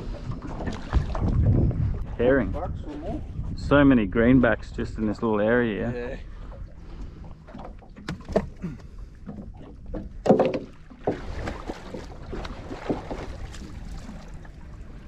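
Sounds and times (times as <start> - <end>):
knocks and clicks on boat: 6.9 - 14.2.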